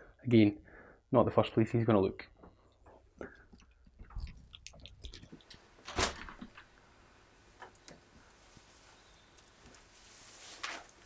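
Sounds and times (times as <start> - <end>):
faint clicks: 9.3 - 9.9.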